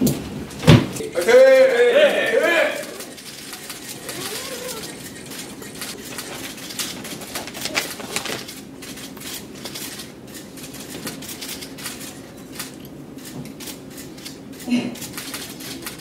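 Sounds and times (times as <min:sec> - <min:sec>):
camera shutters clicking: 0:02.9 - 0:16.0.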